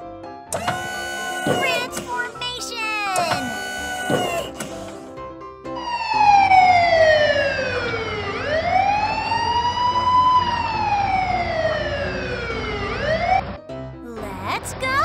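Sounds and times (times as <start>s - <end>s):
police siren wailing: 5.8s - 13.5s.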